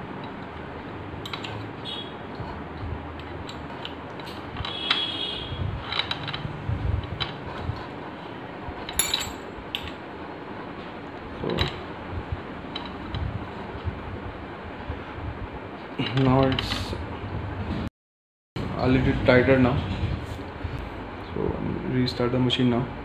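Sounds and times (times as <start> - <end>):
metal clicks and clinks of spanner: 1.2 - 1.6, 5.8 - 7.4, 8.9 - 10.0.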